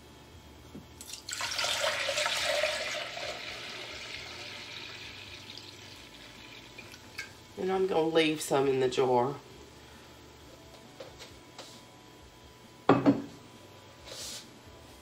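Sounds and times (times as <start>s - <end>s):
liquid pouring into a pitcher: 1.0s - 7.3s.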